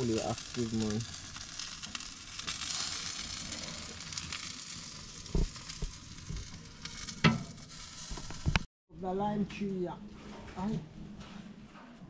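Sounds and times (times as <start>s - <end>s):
chicken sizzling on a grill: 0.0s - 8.7s.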